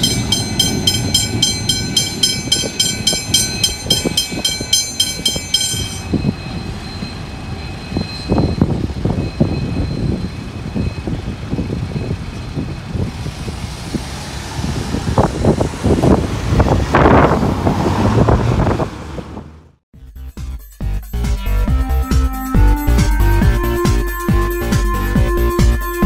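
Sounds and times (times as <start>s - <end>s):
level-crossing bells ringing: 0.0s - 11.1s
wheels knocking on track: 0.0s - 14.2s
locomotive engine rumbling: 0.0s - 19.8s.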